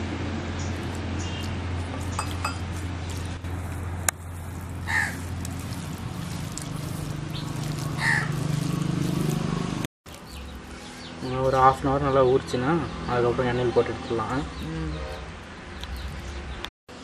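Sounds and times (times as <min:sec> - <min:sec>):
hands kneading wet fish: 0:00.1 - 0:12.0
crow cawing: 0:04.8 - 0:05.2, 0:08.0 - 0:08.4.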